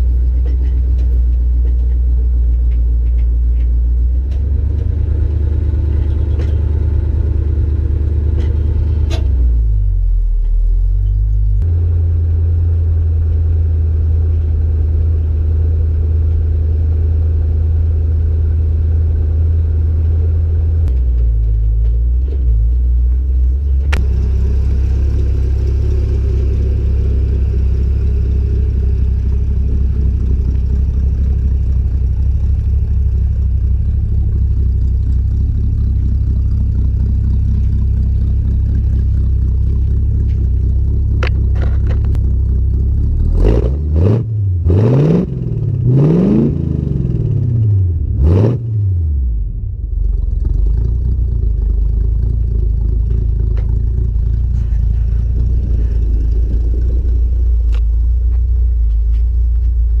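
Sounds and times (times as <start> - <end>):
car engine running: 0.0 - 60.0.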